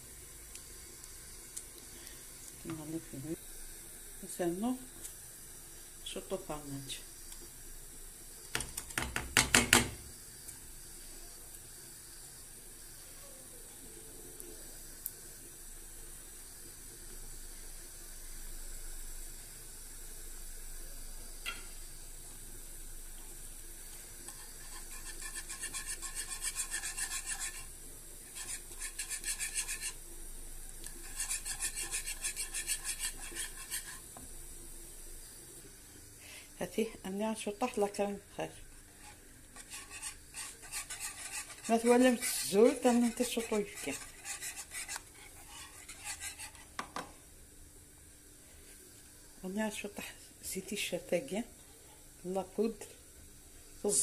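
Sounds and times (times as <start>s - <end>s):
whisk scraping a frying pan: 24.3s - 30.0s, 30.8s - 34.2s, 38.9s - 47.0s.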